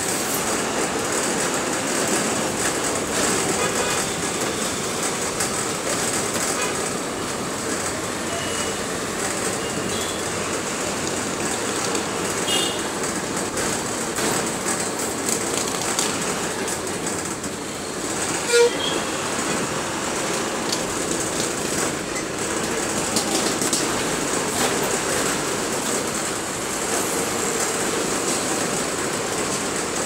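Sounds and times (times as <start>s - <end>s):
bus engine running: 0.0s - 30.0s
road noise: 0.0s - 30.0s
bus body rattle: 9.0s - 30.0s
faint car horn toots: 12.5s - 12.8s, 18.4s - 19.1s.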